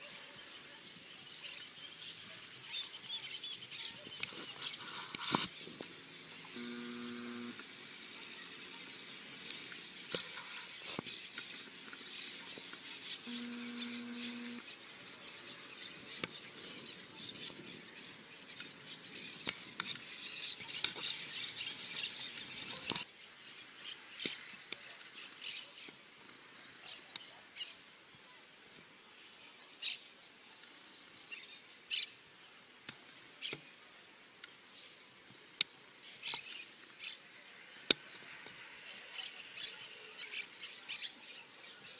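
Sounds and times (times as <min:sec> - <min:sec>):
birds chirping: 0:00.0 - 0:41.9
short low steady tones: 0:06.6 - 0:07.6, 0:13.3 - 0:14.6.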